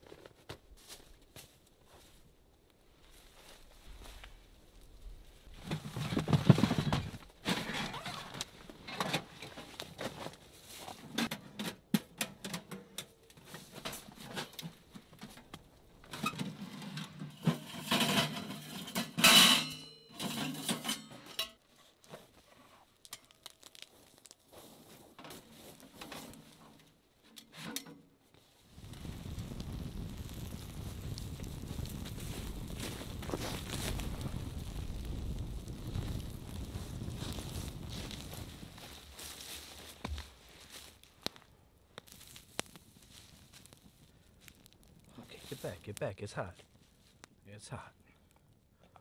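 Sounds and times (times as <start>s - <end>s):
metal stove clanking: 16.2s - 21.6s
shuffling on leaf litter: 35.8s - 41.3s, 42.1s - 47.2s.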